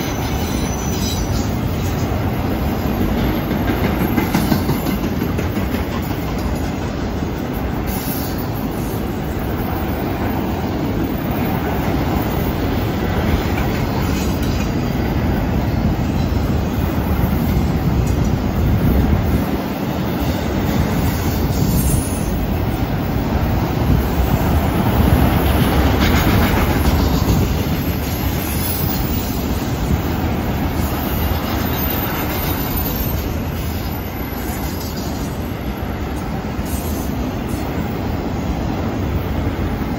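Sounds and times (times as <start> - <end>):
high wheel squeal: 0.0 - 2.1, 27.3 - 29.6, 30.7 - 35.0
clacking at rail joints: 0.0 - 9.0, 11.4 - 22.9, 23.9 - 35.4
freight train wheels rumbling on rail: 0.0 - 39.9.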